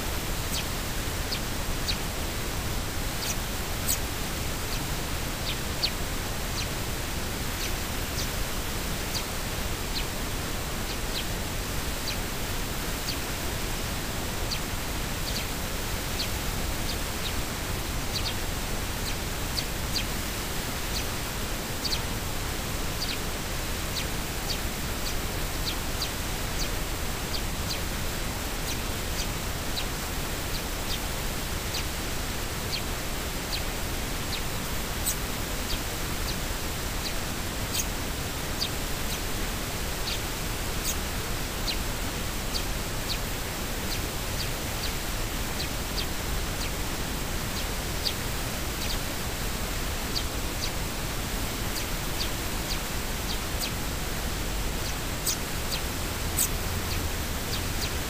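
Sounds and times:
steady hiss: 0.0 - 58.0
sparrows chirping: 0.3 - 58.0.

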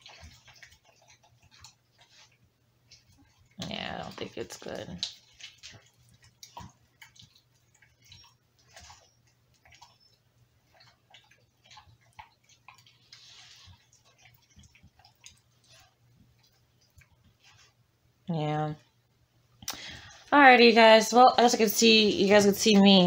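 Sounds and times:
dog licking meat: 0.0 - 17.8.

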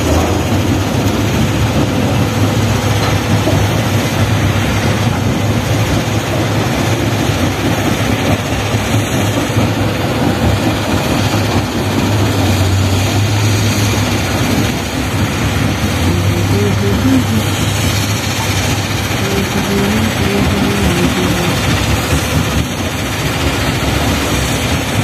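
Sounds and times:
heavy diesel engines running: 0.0 - 25.0.

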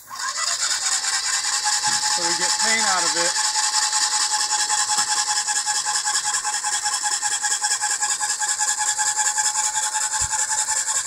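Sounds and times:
paint sprayer pump hissing: 0.0 - 11.0.

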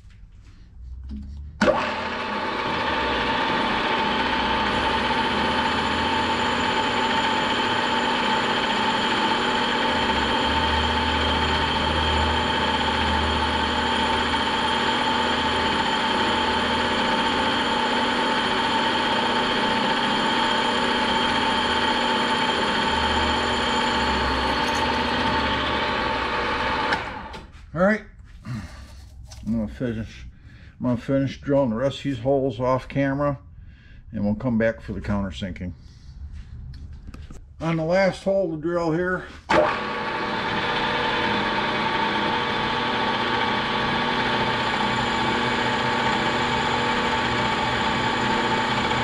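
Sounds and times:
drill bit boring through metal: 1.6 - 27.3, 39.5 - 49.0
milling machine spindle motor running: 1.6 - 27.4, 39.5 - 49.0.

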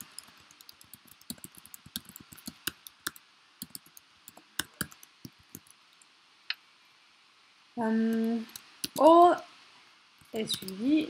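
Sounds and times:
computer keyboard typing: 0.0 - 5.8, 8.1 - 9.1, 10.3 - 10.8.

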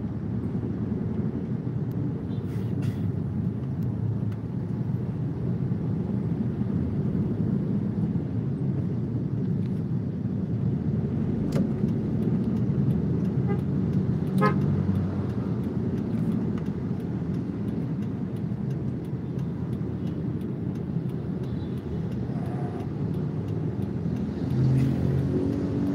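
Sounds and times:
car engine and road rumble: 0.0 - 25.9
car horn toot: 14.4 - 14.7.

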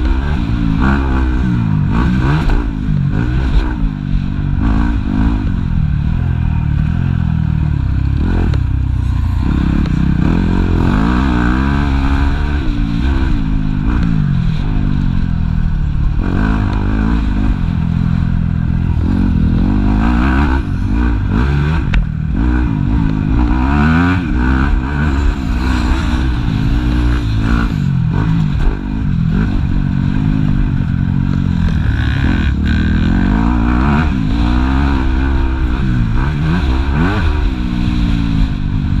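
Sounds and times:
motocross bike engine revving: 0.0 - 39.0.

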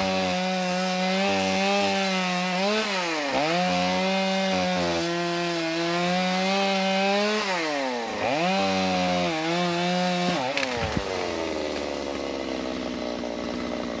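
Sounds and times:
chainsaw cutting wood: 0.0 - 14.0
branch cracking: 10.2 - 13.7.

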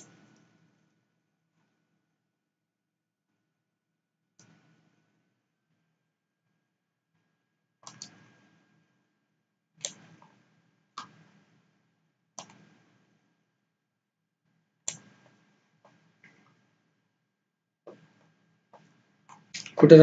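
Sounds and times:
computer mouse clicks: 7.8 - 8.2, 9.8 - 10.1, 12.4 - 12.6, 14.9 - 15.3.

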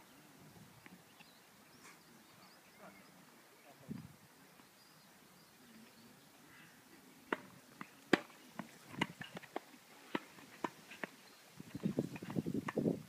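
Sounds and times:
rackets striking tennis ball: 7.3 - 11.2.

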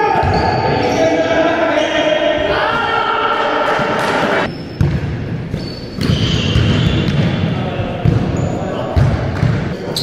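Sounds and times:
basketball bouncing on floor: 4.8 - 7.3.

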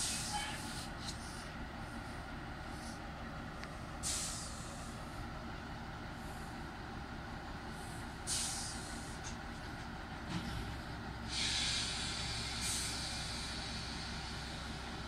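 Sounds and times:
steady low rumble: 0.0 - 15.0
compressed air hissing: 4.0 - 4.9, 7.8 - 9.1, 11.3 - 14.6.

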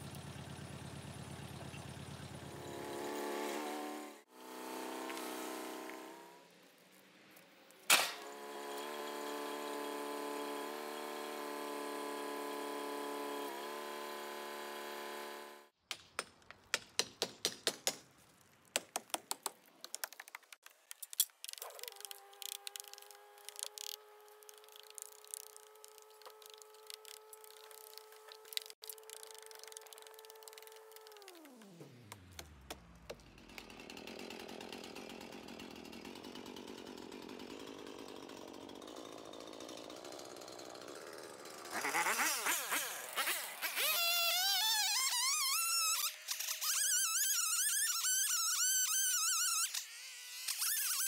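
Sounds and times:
small engine idling with ticking: 0.0 - 3.2, 21.8 - 43.9
tractor engine running: 0.0 - 3.5.

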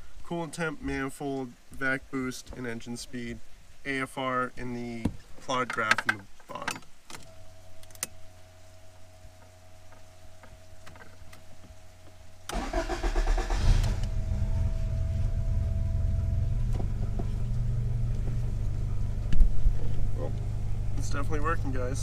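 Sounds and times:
faint steady hum: 0.0 - 22.0
car engine idling: 7.3 - 22.0
starter cranking engine: 12.5 - 14.4.

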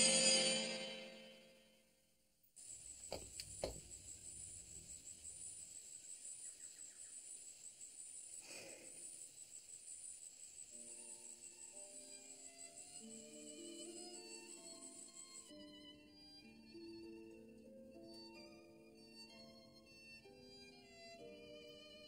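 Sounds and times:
quiet music: 0.0 - 2.0, 10.5 - 22.0
crickets chirping: 2.6 - 15.8
soft knocks: 3.1 - 3.9.

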